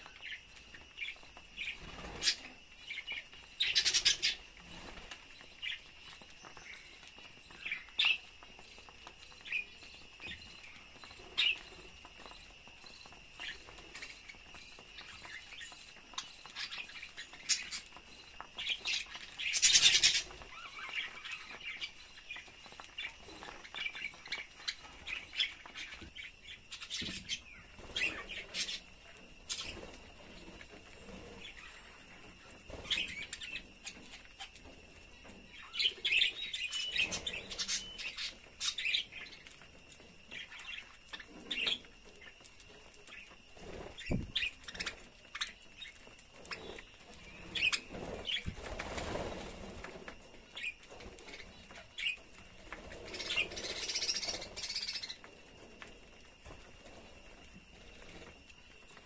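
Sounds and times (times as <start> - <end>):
budgerigars chirping and chattering: 1.1 - 4.9, 18.5 - 22.0.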